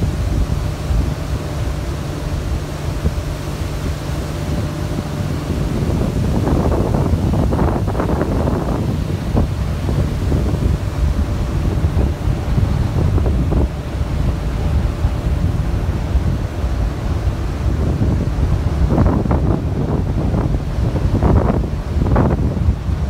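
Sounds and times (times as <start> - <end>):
boat engine low rumble: 0.0 - 23.0
water splashing against hull: 0.0 - 23.0
wind buffeting microphone: 0.0 - 23.0.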